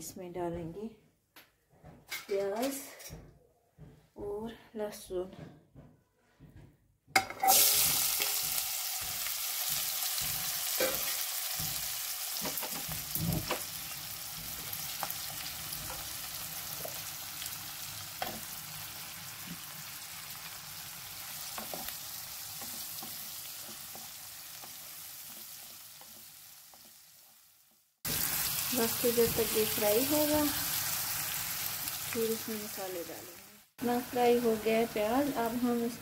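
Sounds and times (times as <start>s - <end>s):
onions sizzling in hot oil: 7.4s - 36.0s.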